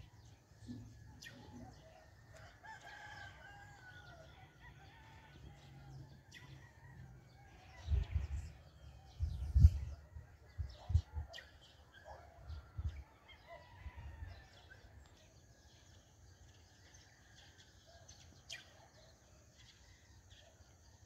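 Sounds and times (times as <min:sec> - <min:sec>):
distant rooster crowing: 0:01.7 - 0:08.4.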